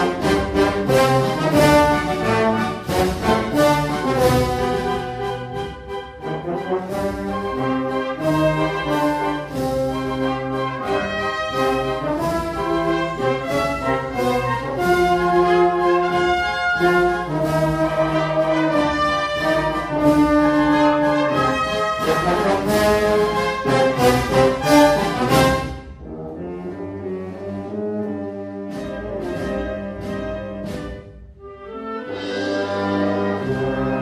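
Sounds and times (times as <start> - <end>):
regular drum beats: 0.0 - 26.2
brass band playing march: 0.0 - 34.0.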